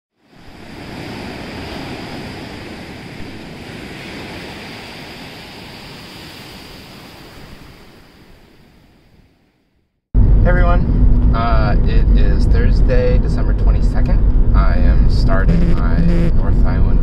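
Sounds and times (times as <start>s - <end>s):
ocean waves breaking on beach: 0.2s - 9.6s.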